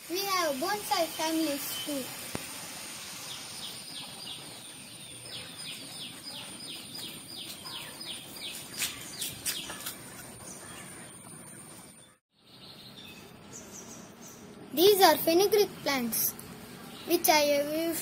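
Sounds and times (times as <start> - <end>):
small bird chirping: 3.3 - 14.6.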